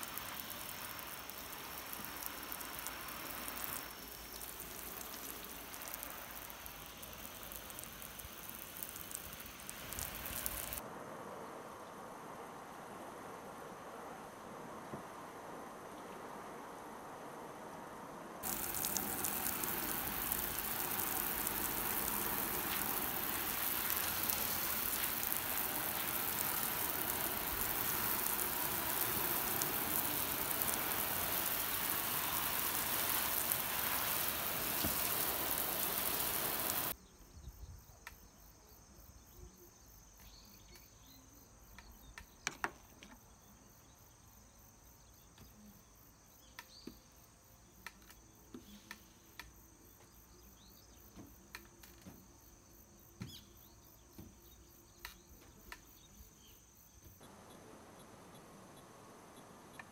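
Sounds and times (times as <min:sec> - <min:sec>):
hose water spraying on car: 0:00.0 - 0:10.8, 0:18.4 - 0:37.0
insects chirping: 0:00.0 - 0:10.8, 0:18.4 - 0:59.9.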